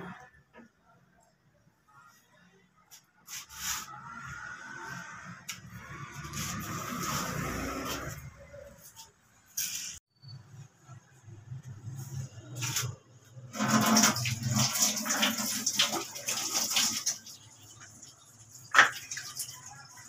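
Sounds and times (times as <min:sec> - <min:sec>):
tap water splashing into sink: 0:18.6 - 0:19.6.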